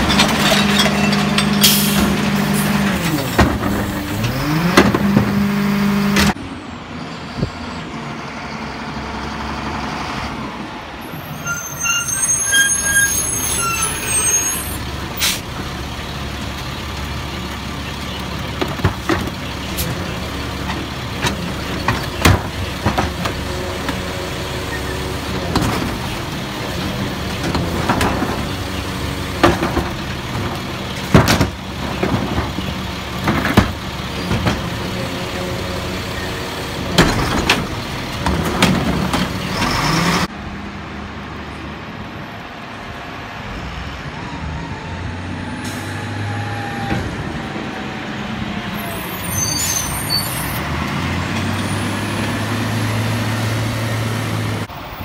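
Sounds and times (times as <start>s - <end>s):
clunks and bangs of carts: 0.0s - 6.4s, 17.8s - 35.4s, 36.0s - 40.3s
garbage truck engine revving: 0.0s - 6.4s
short squeaks: 11.3s - 14.8s, 48.8s - 50.6s.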